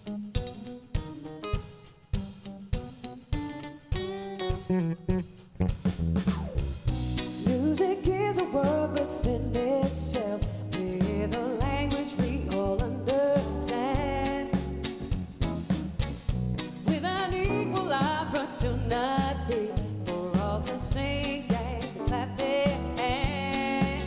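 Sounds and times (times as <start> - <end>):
live soul band playing: 0.0 - 24.0
woman singing: 7.3 - 14.8, 16.8 - 24.0.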